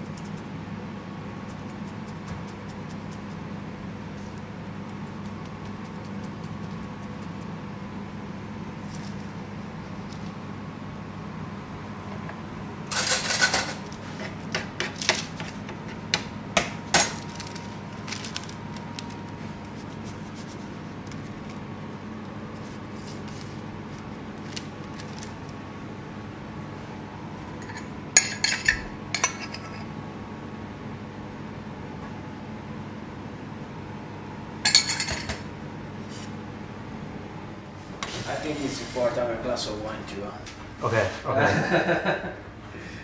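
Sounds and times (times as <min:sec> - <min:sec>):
kitchen equipment hum: 0:00.0 - 0:43.0
metal utensils clattering: 0:12.9 - 0:13.8.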